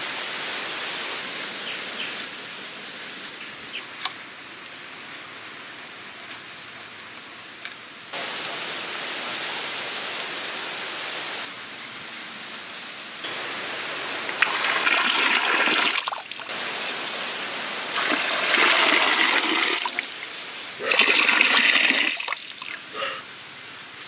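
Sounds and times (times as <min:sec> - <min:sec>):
water pouring into a pond: 0:13.3 - 0:16.6, 0:17.9 - 0:22.9.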